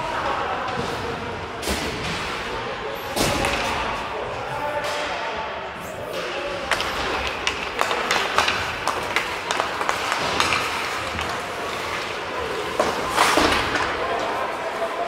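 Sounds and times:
hockey sticks clacking on puck: 6.0 - 15.0
skates scraping on ice: 6.1 - 15.0.

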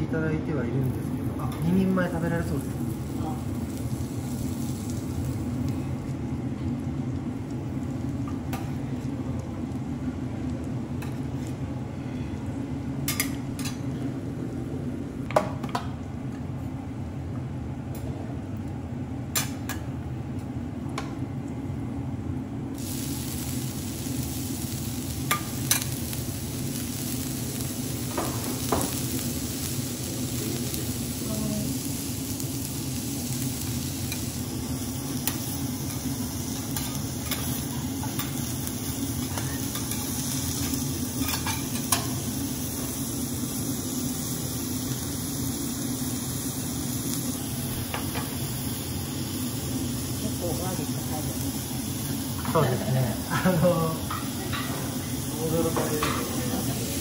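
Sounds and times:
food sizzling on griddle: 0.6 - 11.7, 22.7 - 57.0.

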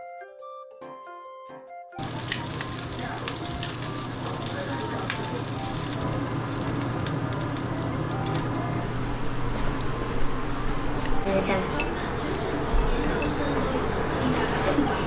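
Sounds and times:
hot oil frying fish: 2.0 - 11.2.

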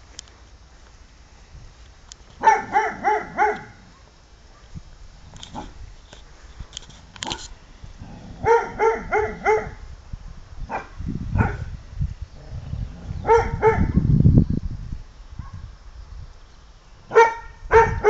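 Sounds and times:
low rumbling noise: 1.0 - 18.0
dog barking: 2.4 - 4.7, 8.4 - 9.8, 10.7 - 11.7, 13.2 - 14.1, 15.4 - 15.6, 17.1 - 18.0.

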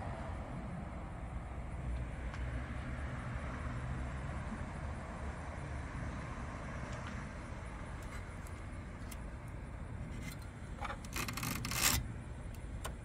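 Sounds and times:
dry rubbing scrape: 10.0 - 12.0.

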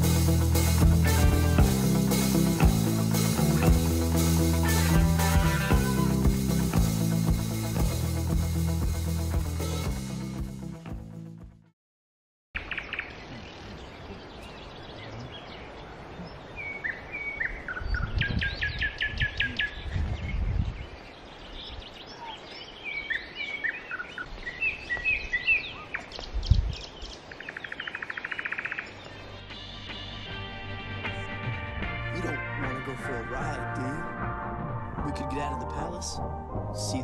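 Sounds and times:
songbirds singing: 12.6 - 31.1.

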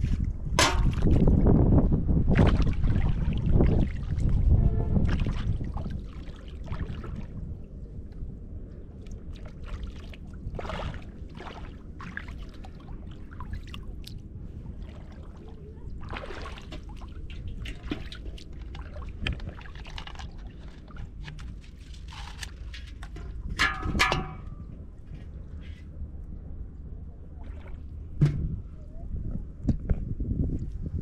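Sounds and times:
steady low rumble: 0.0 - 31.0
river water splashing: 5.0 - 7.6, 8.9 - 22.3.

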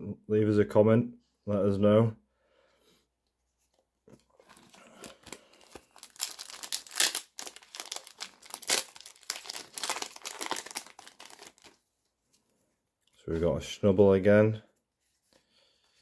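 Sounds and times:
foil card pack tearing: 4.6 - 11.8.

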